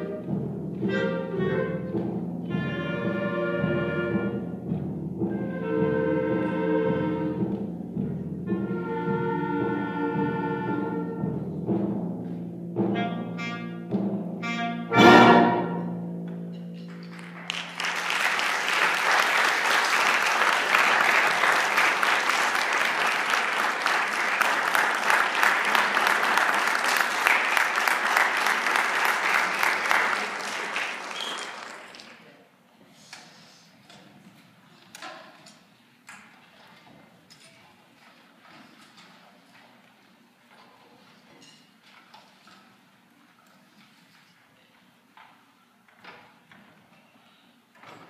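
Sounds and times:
timpani: 0.0s - 31.7s
audience applause: 16.9s - 32.4s.

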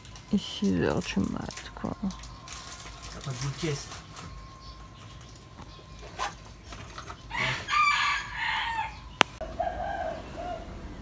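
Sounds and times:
rooster crowing: 7.3s - 11.0s.

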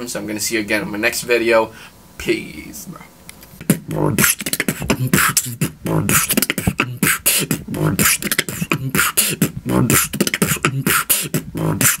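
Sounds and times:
beatboxing: 2.8s - 12.0s.

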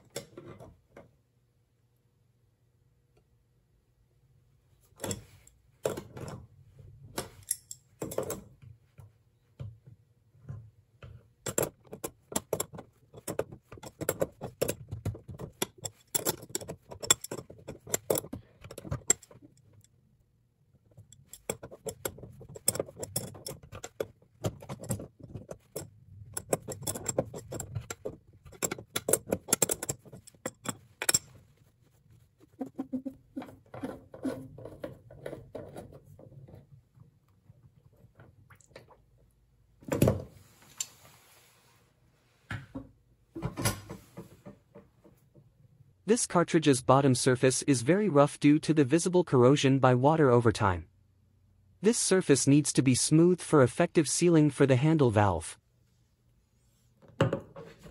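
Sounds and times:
tools clinking on metal: 7.4s - 8.4s, 15.4s - 19.7s, 24.6s - 31.4s.

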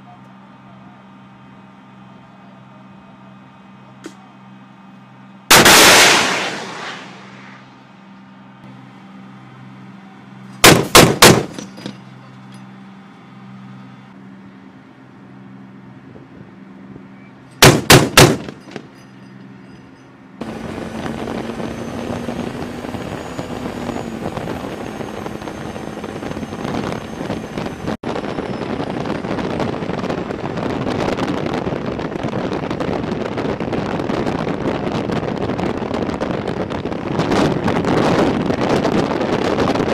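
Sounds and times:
heavy cannon gunfire: 5.5s - 7.5s, 10.6s - 11.7s, 17.6s - 18.9s
rushing wind noise: 20.4s - 39.9s.

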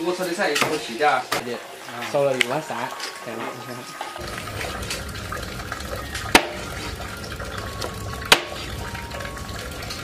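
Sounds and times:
water running: 0.0s - 10.0s
sharp knocks: 8.3s - 8.6s.

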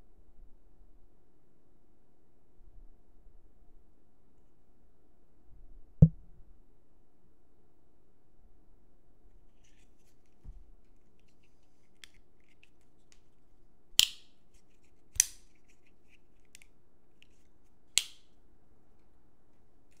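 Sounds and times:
folding knife snapping clicks: 14.0s - 14.3s, 15.2s - 15.4s, 18.0s - 18.2s.

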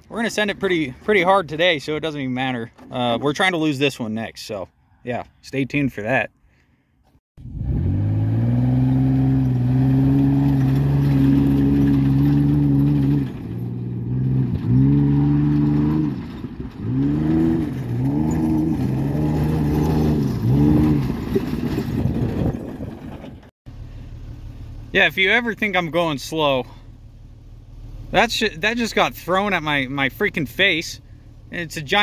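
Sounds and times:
truck engine revving: 7.4s - 23.5s.

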